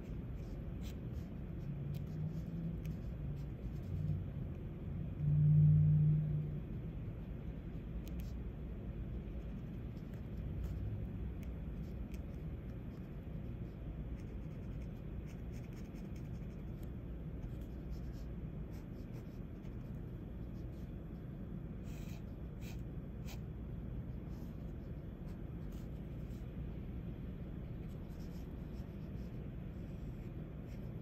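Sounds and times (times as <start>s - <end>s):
pen scratching on paper: 0.0s - 3.9s, 9.3s - 10.8s, 11.4s - 21.2s, 21.8s - 23.4s, 27.8s - 31.0s
steady low hum: 0.0s - 31.0s.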